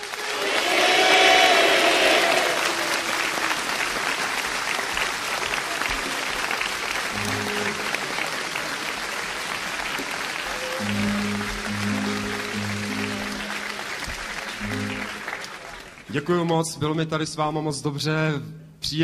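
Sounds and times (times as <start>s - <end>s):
audience clapping: 0.0s - 16.7s
low held notes: 7.2s - 8.8s, 10.7s - 15.5s.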